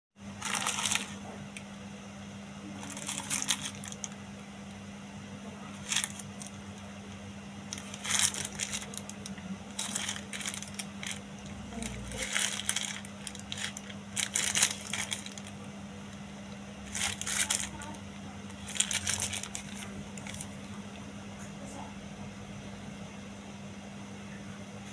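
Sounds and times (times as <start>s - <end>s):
steady low hum: 0.2s - 24.9s
plastic mailer bag crinkling: 0.4s - 1.6s, 2.7s - 4.2s, 5.6s - 6.9s, 7.6s - 20.6s.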